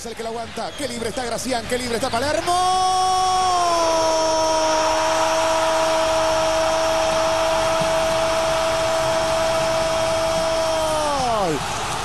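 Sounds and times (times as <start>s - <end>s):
stadium crowd noise: 0.0s - 12.0s
commentator shouting: 2.1s - 11.7s.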